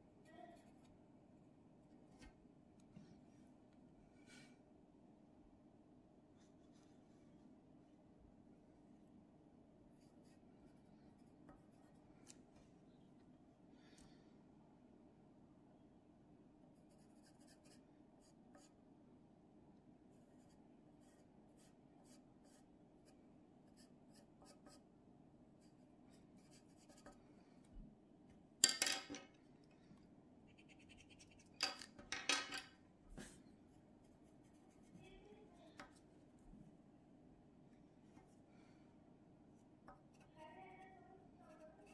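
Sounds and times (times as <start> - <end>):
pencil scratching on paper: 10.0 - 12.0, 16.8 - 18.8, 20.1 - 24.9, 25.6 - 27.2, 30.5 - 31.8, 34.0 - 36.0, 41.4 - 41.9
quick pencil scribbling: 30.5 - 31.6.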